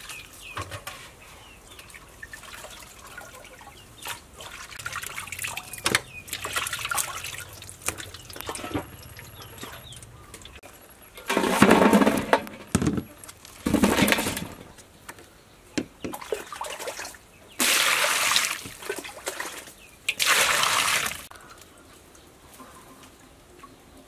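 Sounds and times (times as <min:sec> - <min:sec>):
water drips: 0:01.7 - 0:10.6
water splashing in metal basin: 0:01.8 - 0:10.6, 0:16.1 - 0:21.3.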